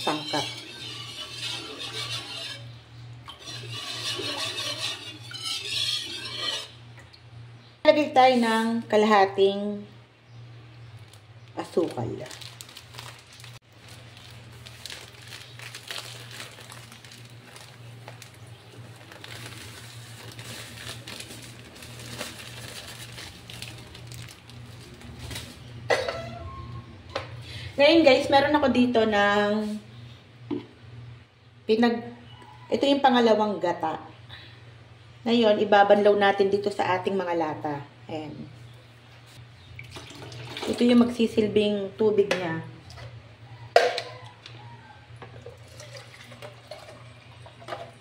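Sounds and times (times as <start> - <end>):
whisk scraping metal pan: 0.0 - 6.8
liquid swishing and sloshing: 0.1 - 6.8
plastic bag crinkling: 11.0 - 25.7.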